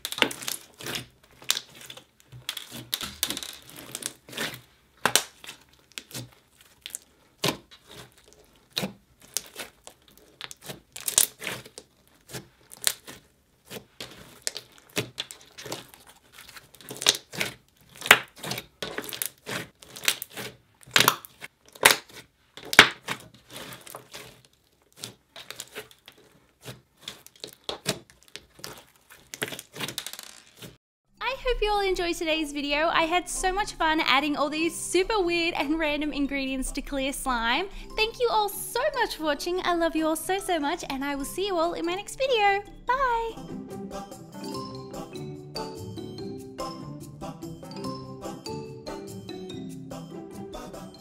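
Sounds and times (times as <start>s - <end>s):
slime popping and squishing: 0.0s - 30.8s.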